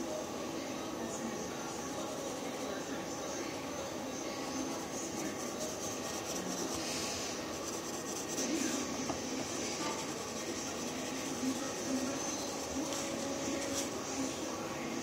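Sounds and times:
steady background noise: 0.0s - 15.0s
pencil scratching on paper: 4.4s - 14.0s.

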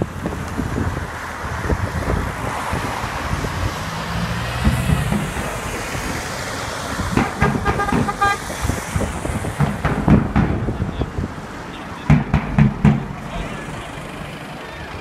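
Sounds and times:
bus passing: 0.0s - 15.0s
road traffic: 0.0s - 15.0s
irregular thumps: 4.5s - 6.1s, 7.1s - 8.3s, 8.9s - 10.9s, 12.1s - 13.3s.

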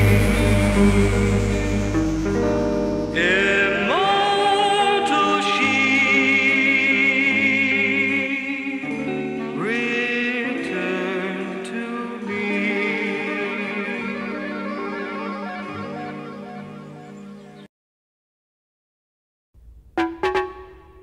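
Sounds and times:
person singing long wavering notes: 0.0s - 2.0s, 3.1s - 17.6s
sustained backing chords: 0.0s - 4.4s, 20.0s - 21.0s.

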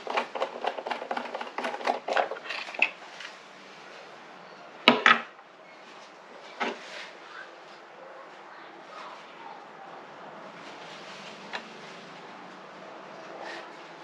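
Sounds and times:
hard plastic clicking and rattling: 0.0s - 3.0s
plastic cover clattering: 0.0s - 3.0s.

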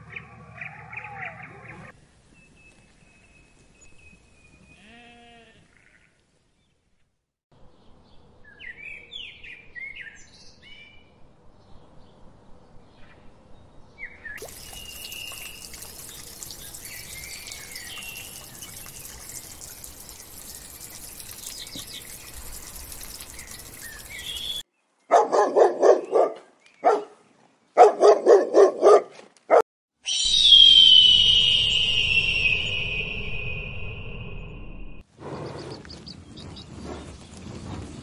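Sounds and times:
songbird chirps: 0.2s - 4.9s, 7.6s - 25.2s, 30.1s - 37.3s
fast rhythmic animal calls: 14.4s - 24.6s
trickling water: 14.4s - 24.6s
high falling whistle: 30.0s - 35.0s.

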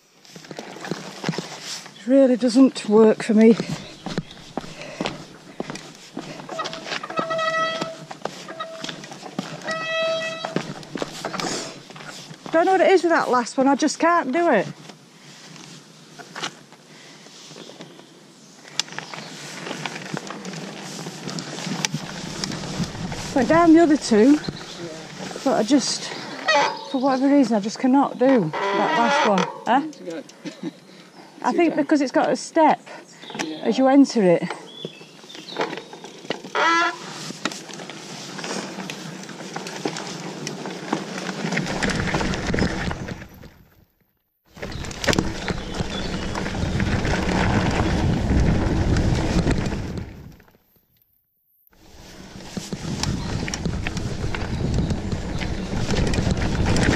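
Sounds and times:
bike tyres on dirt: 0.0s - 30.0s, 30.6s - 56.9s
bike rattling over bumps: 0.3s - 15.0s, 18.6s - 29.8s, 34.4s - 43.9s, 44.5s - 50.5s, 51.8s - 56.9s
honk-like squeal: 6.6s - 8.8s, 26.4s - 27.0s, 36.5s - 37.0s.

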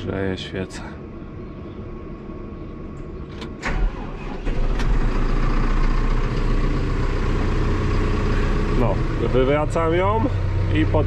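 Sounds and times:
tractor diesel engine starting: 3.3s - 11.0s.

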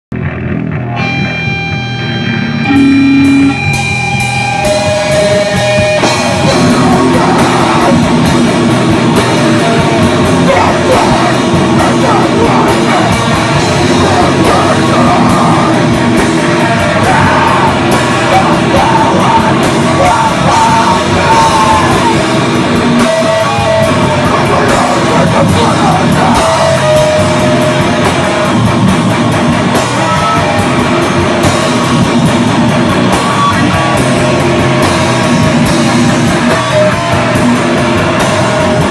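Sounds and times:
distorted electric guitar: 0.1s - 38.9s
drums: 0.1s - 38.9s
live rock band playing: 0.1s - 38.9s
person singing: 2.7s - 3.7s, 6.0s - 8.3s, 9.3s - 22.3s, 23.0s - 27.4s.

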